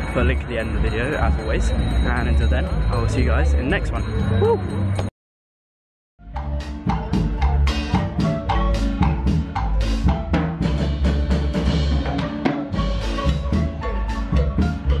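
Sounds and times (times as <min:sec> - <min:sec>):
drum kit beat: 0:06.2 - 0:15.0
live dance band playing: 0:06.3 - 0:15.0.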